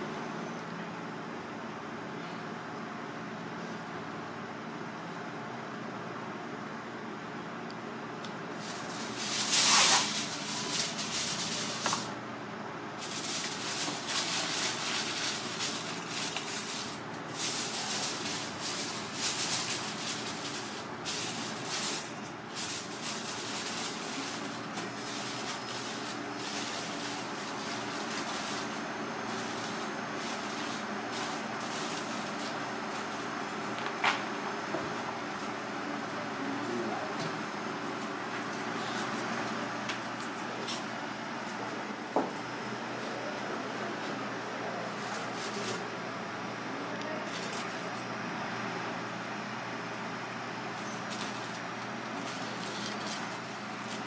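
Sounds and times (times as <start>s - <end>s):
steady low hum: 0.0s - 54.0s
aluminium foil crinkling: 8.5s - 12.2s, 13.0s - 33.2s, 44.9s - 45.8s, 47.2s - 48.0s, 50.7s - 54.0s.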